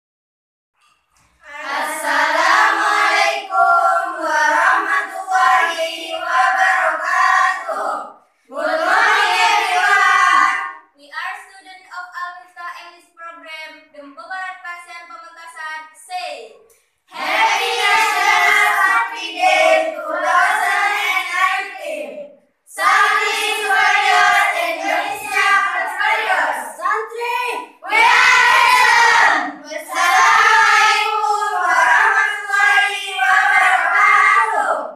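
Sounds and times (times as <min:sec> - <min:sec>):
young voices chanting in unison: 0:01.4 - 0:10.9, 0:17.1 - 0:34.9.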